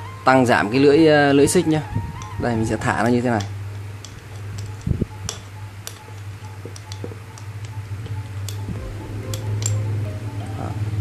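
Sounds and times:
steady low hum: 0:00.0 - 0:11.0
light metal clicks and taps: 0:03.0 - 0:08.7.

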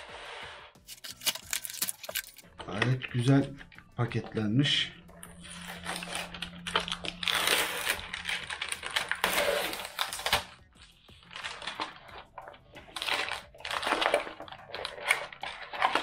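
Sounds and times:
cardboard packaging rustling: 0:00.8 - 0:02.5, 0:05.4 - 0:16.0.

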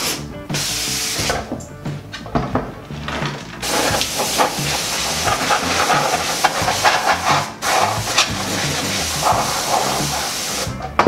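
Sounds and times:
compressed air spraying: 0:00.0 - 0:01.5, 0:03.6 - 0:10.8.

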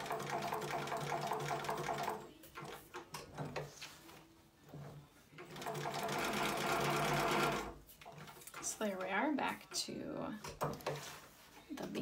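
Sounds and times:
sewing machine stitching leather: 0:00.0 - 0:09.4.

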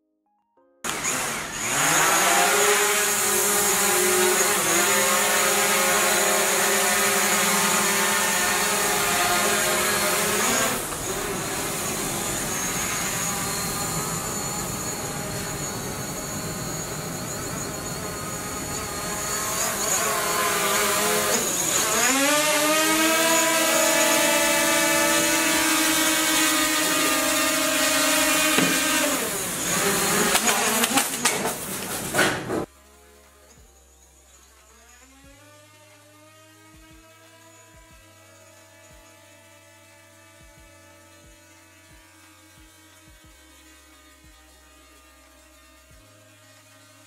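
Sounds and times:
drone propellers whining: 0:00.9 - 0:31.6.

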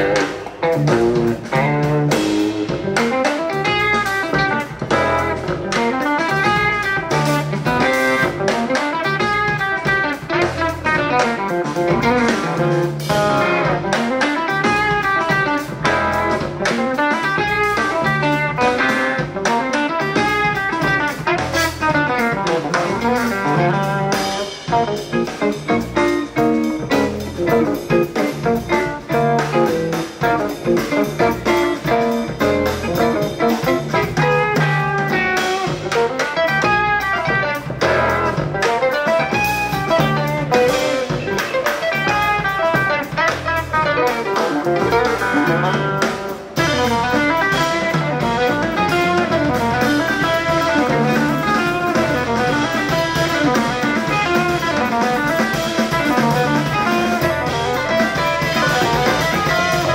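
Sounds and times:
jazz guitar band: 0:00.0 - 0:59.9.

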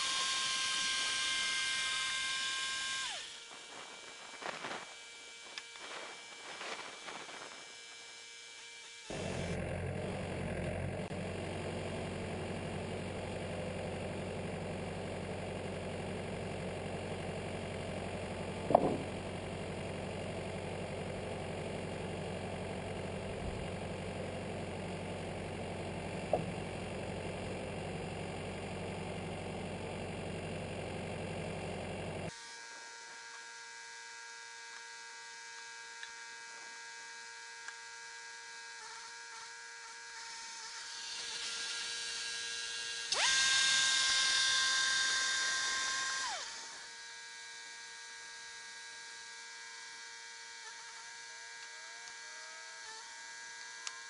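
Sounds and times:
band sawmill running: 0:00.0 - 0:36.7, 0:37.3 - 0:54.0
sharp knocks: 0:18.7 - 0:19.1.

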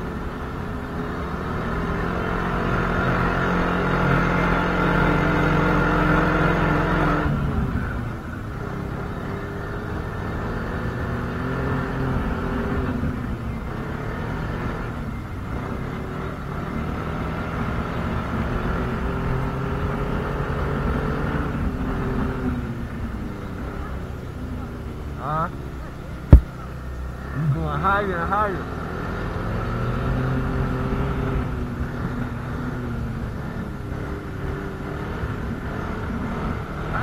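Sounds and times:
snowmobile engine running: 0:00.0 - 0:28.8.

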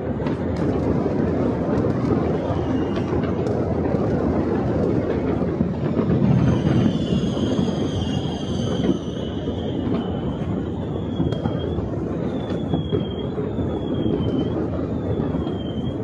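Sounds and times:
distant fireworks rumble: 0:00.0 - 0:16.0
fireworks sharp cracks: 0:00.0 - 0:16.0
high falling whistle: 0:06.0 - 0:16.0.

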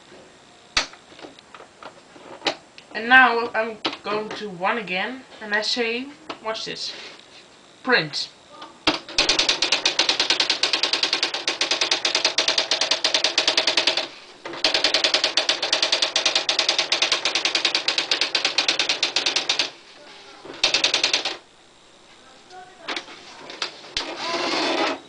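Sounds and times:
electronic typewriter printing: 0:08.8 - 0:21.5, 0:22.8 - 0:25.0.

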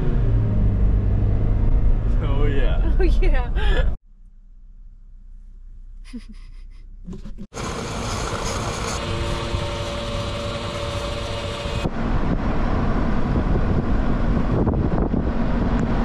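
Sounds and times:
road and engine noise: 0:00.0 - 0:06.0, 0:06.8 - 0:16.0
wind on microphone: 0:08.5 - 0:16.0.

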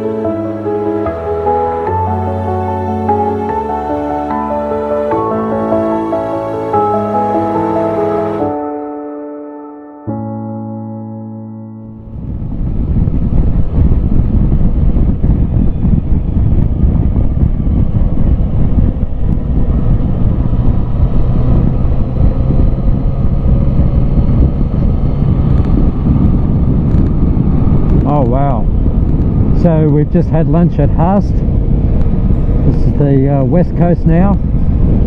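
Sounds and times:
motorcycle engine drone: 0:00.0 - 0:09.4, 0:10.1 - 0:35.0
wind rush on microphone: 0:11.8 - 0:35.0.

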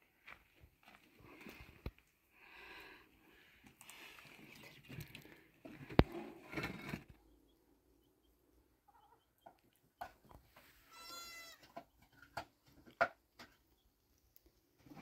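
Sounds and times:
farm animal bleating: 0:10.8 - 0:11.8.

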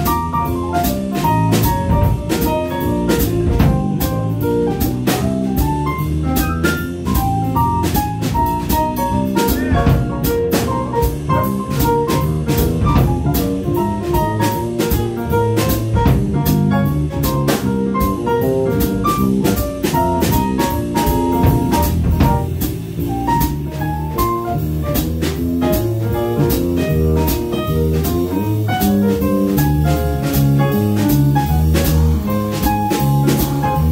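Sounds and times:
guitar: 0:00.0 - 0:25.0
double bass: 0:00.0 - 0:33.9
drum kit: 0:00.0 - 0:33.9.

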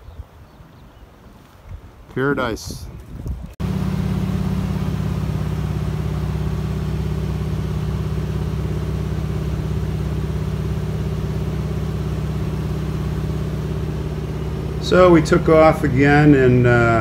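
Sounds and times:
airplane engine and propeller drone: 0:03.6 - 0:17.0.

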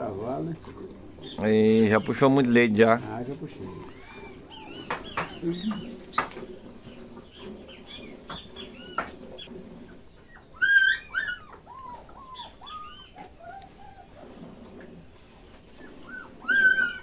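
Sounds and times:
dogs whining and yelping: 0:03.4 - 0:17.0.

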